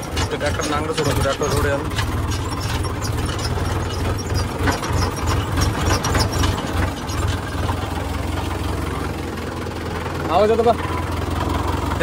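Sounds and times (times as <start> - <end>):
irregular clicking and rattling: 0.0 - 8.7
tractor diesel engine throbbing: 0.0 - 12.0.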